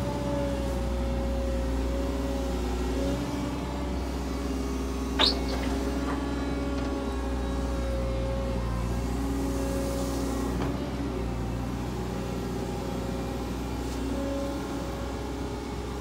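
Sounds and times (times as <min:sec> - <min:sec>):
excavator diesel engine: 0:00.0 - 0:16.0
hydraulics working: 0:05.1 - 0:07.3
high squeal: 0:05.2 - 0:06.0.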